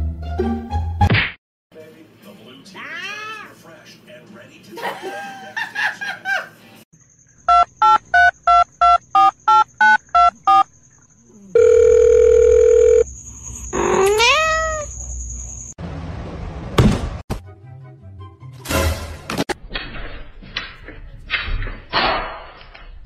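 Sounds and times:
steady phone tone: 7.5 - 10.7, 11.6 - 13.1.

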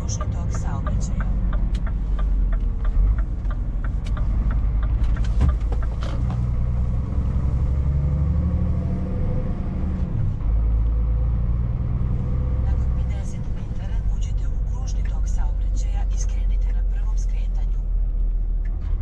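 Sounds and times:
turn indicator ticking: 0.0 - 7.2
diesel truck engine: 0.0 - 19.0.

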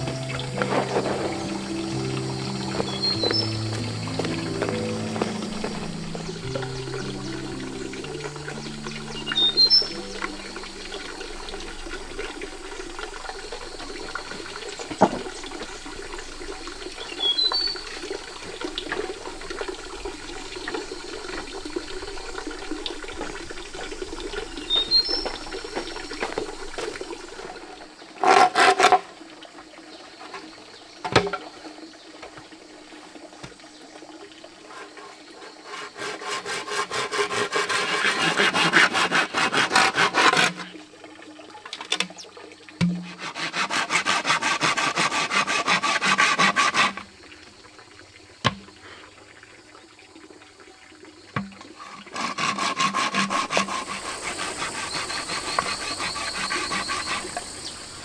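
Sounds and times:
running water rushing: 0.0 - 58.0
rhythmic rasping strokes: 34.7 - 40.7, 42.8 - 47.0, 52.0 - 57.5
knocks: 42.8 - 43.1.

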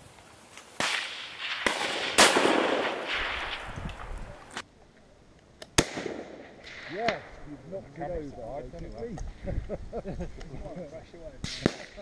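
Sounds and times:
rifle shots with rolling echo: 0.8 - 4.6, 5.8 - 7.4, 11.4 - 12.0.

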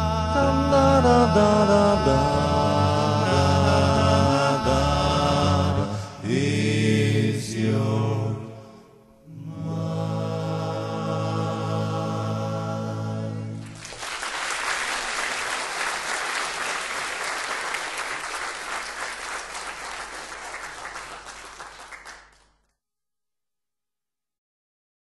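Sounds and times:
audience applause: 13.6 - 22.5.

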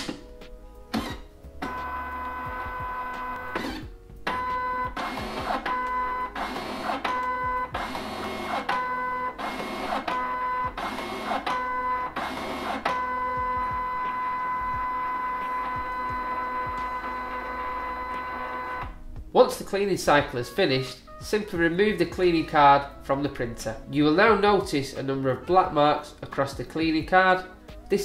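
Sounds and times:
printer motor whining: 0.9 - 19.0.

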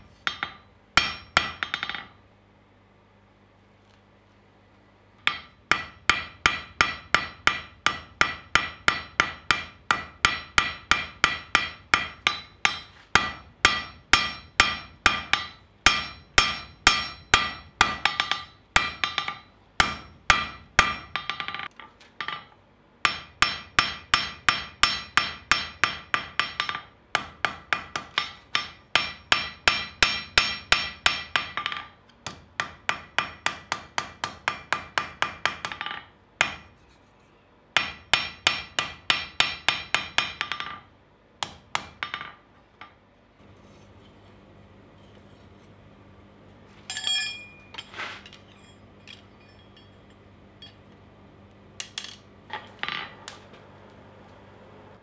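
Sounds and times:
hammer ringing on anvil: 0.2 - 2.1, 5.3 - 21.6, 23.1 - 31.8, 46.9 - 47.9, 48.5 - 50.8.

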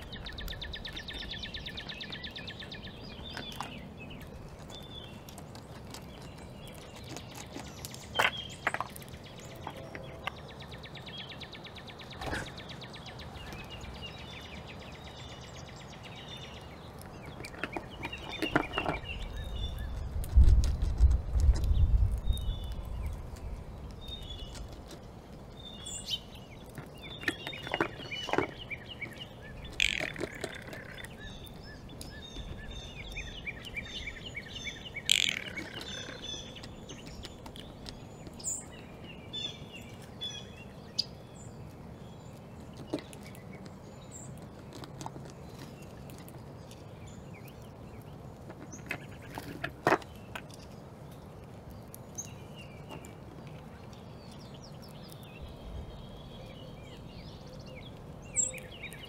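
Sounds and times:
low background noise: 0.0 - 59.0
small songbirds chirping: 0.0 - 59.0.

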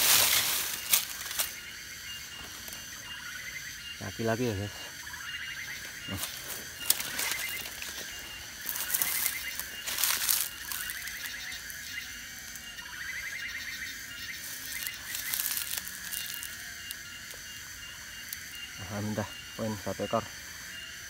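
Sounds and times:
footsteps in dry leaves: 0.0 - 1.6, 5.9 - 11.8, 14.2 - 17.0
fast-pulsing insect tone: 0.0 - 21.0
short insect trill: 0.0 - 21.0.

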